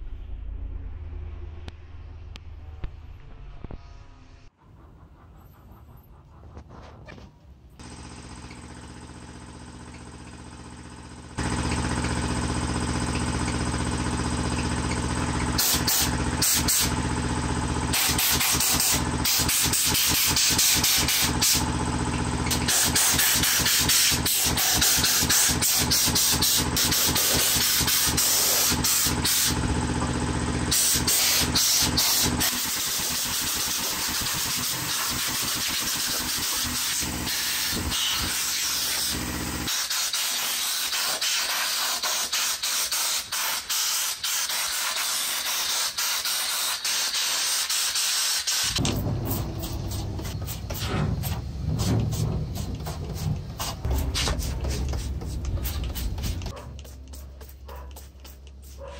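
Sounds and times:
air compressor humming: 4.6s - 58.9s
air blow gun hissing: 15.6s - 21.8s, 22.4s - 29.8s, 30.7s - 56.5s.

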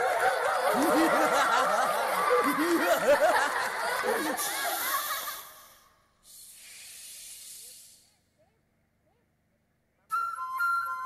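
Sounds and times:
many people laughing: 0.0s - 5.8s.

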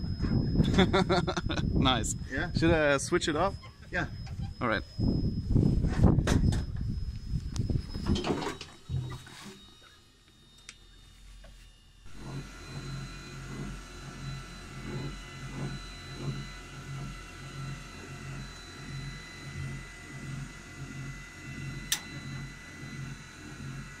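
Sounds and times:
electric motor humming: 0.0s - 24.0s
sharp click: 21.9s - 22.1s.

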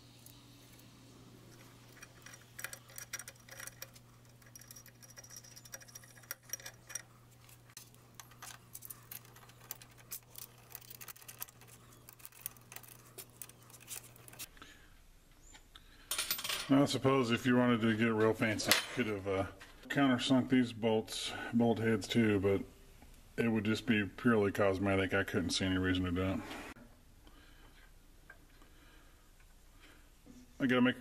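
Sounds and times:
steady low hum: 0.0s - 16.3s
metallic clicks of screws and key: 1.5s - 14.5s.

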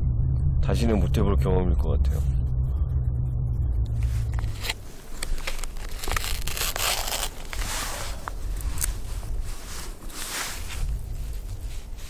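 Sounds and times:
packaging rustling and tearing: 4.4s - 12.0s.

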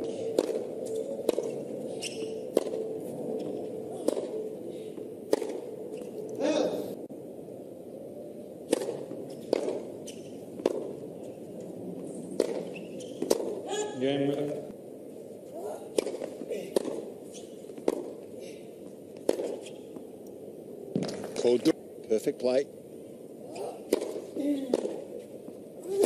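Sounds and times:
tennis ball struck by rackets: 0.3s - 2.8s, 4.0s - 4.4s, 5.3s - 5.6s, 8.7s - 11.0s, 12.4s - 13.7s, 15.9s - 17.2s, 17.8s - 18.2s, 19.2s - 19.8s, 23.8s - 25.1s.

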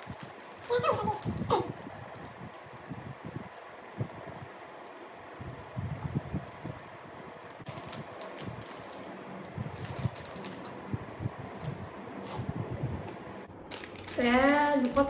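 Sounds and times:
plastic wrapper crinkling: 0.0s - 3.5s, 7.5s - 10.8s, 13.5s - 15.0s.

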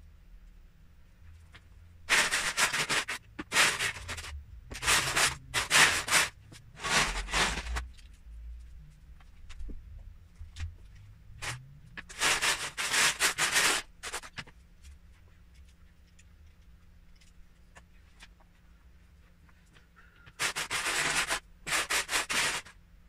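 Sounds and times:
plastic bricks clattering: 2.1s - 7.8s, 20.2s - 22.7s.

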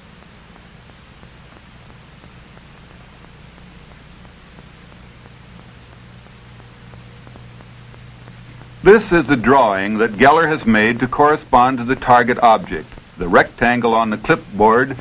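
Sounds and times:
film soundtrack hiss: 0.0s - 15.0s
low hum: 0.0s - 15.0s.

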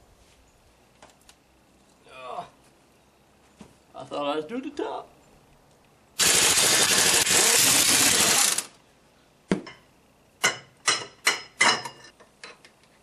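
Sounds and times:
impact wrench rattling: 6.2s - 8.7s.

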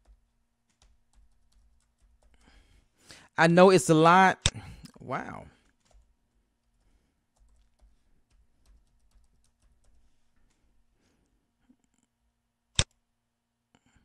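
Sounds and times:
keyboard typing: 0.0s - 2.7s, 5.6s - 10.7s.

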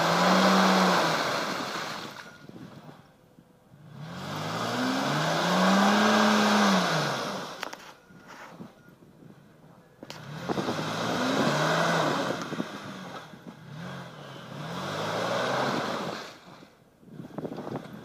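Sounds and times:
suv engine revving hard: 0.0s - 2.2s, 3.8s - 7.6s, 10.1s - 18.0s.

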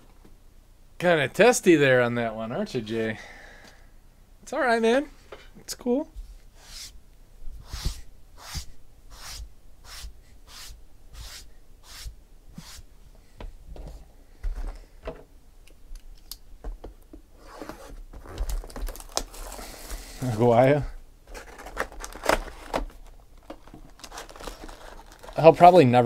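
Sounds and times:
plastic wrap and cardboard tearing: 17.4s - 20.5s, 21.3s - 25.9s.

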